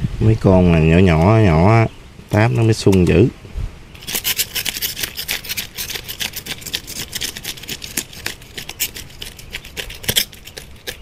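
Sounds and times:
knife scraping fish on board: 4.0 - 11.0.

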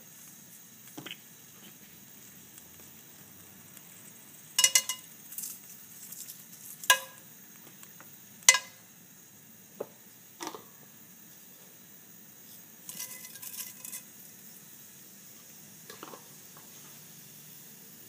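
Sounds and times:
faint sizzle: 0.0 - 18.0
spices clinking in a pan: 3.8 - 8.9, 12.8 - 14.6, 15.9 - 16.9.

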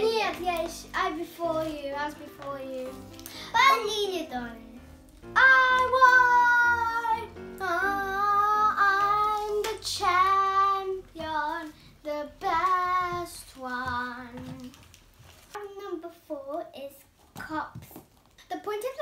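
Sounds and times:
girl singing long notes: 0.6 - 14.7.

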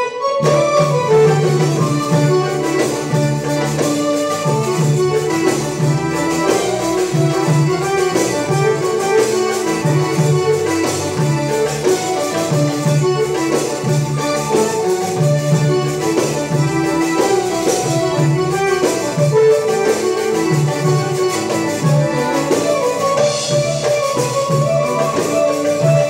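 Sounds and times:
keyboards playing melody: 0.0 - 26.0
electric bass: 0.4 - 26.0
goblet drum strokes: 0.4 - 26.0.

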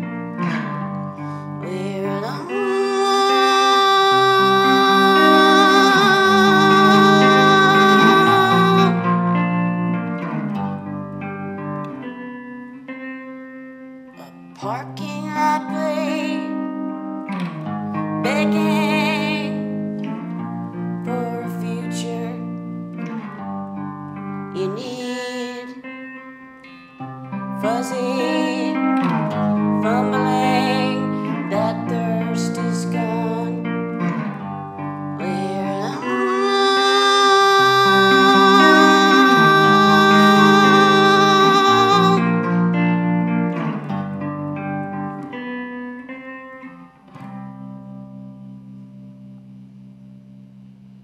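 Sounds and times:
electric guitar chords: 0.0 - 51.0
woman singing with vibrato: 1.3 - 9.5, 14.2 - 16.6, 18.2 - 19.6, 21.0 - 22.5, 24.6 - 25.9, 27.6 - 33.6, 35.2 - 42.6.

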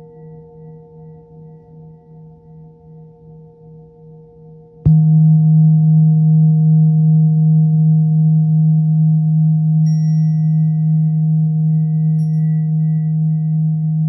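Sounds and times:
high bowl tone: 0.0 - 3.7, 4.9 - 14.0
singing bowl ringing: 0.0 - 5.2, 9.8 - 14.0.

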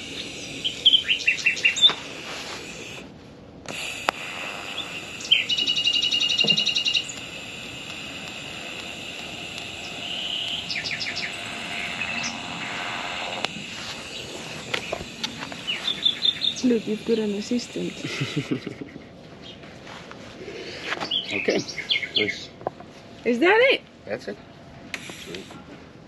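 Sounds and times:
songbirds chirping and trilling: 0.0 - 2.1, 4.5 - 17.6, 20.4 - 22.9
steady background hiss: 0.0 - 26.0.

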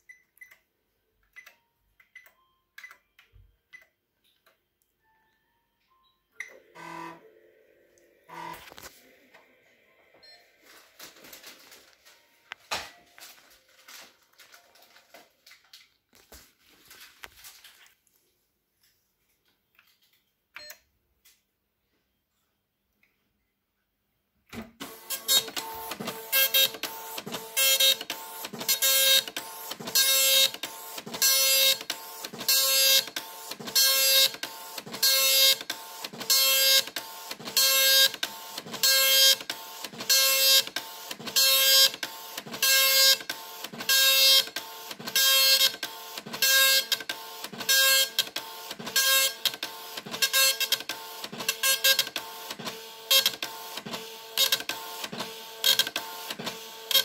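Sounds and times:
dot-matrix printer buzzing: 6.7 - 7.2, 8.2 - 8.9, 24.8 - 57.0.

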